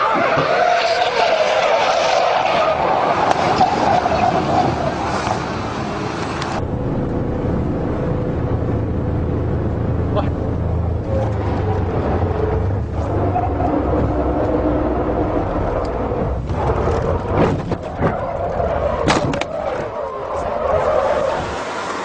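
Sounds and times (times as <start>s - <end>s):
car engine droning inside cabin: 6.6s - 22.0s.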